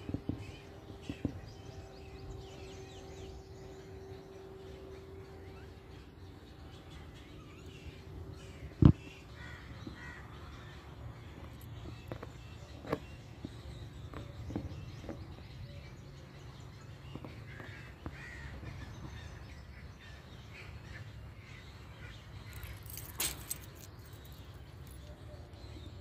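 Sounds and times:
bird calls: 0.0 - 26.0
low steady rumble: 0.0 - 26.0
crow-like caws: 9.4 - 10.2.

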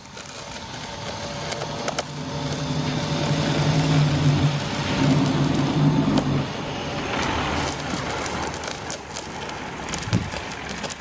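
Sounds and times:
electrical arc buzzing hum: 0.0 - 8.4.

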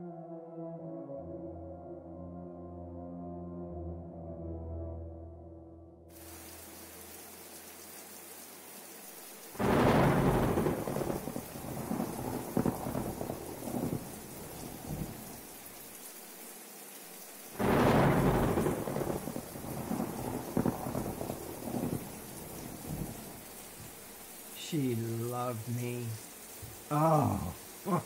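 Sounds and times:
steady rain: 6.1 - 28.0
thunderclaps rumbling and crackling: 9.6 - 15.6, 17.6 - 23.9.

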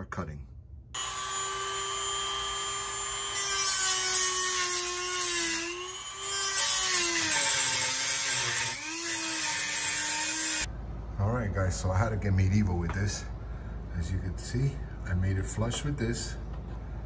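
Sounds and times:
power tool whining: 1.0 - 10.7.

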